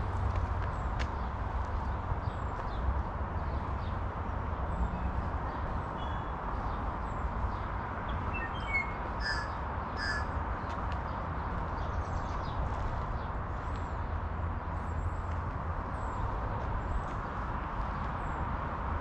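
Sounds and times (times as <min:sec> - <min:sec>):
outdoor background noise: 0:00.0 - 0:19.0
birds chirping: 0:08.1 - 0:10.3.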